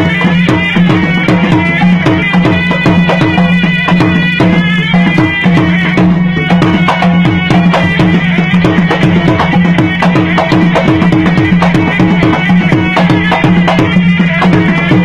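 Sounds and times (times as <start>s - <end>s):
reed pipe melody: 0.0s - 15.0s.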